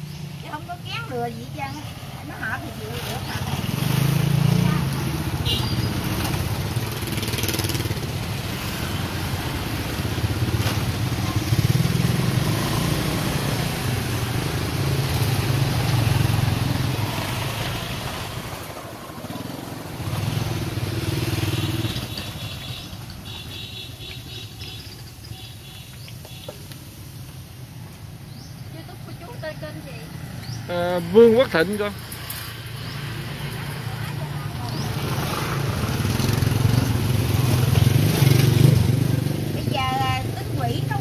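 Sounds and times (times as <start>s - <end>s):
motorbikes and scooters passing: 0.0s - 41.0s.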